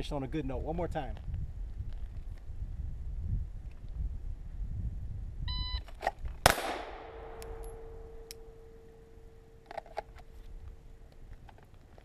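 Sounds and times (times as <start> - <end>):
pistol shot: 6.4 - 8.8
ringing after gunshot: 6.4 - 9.6.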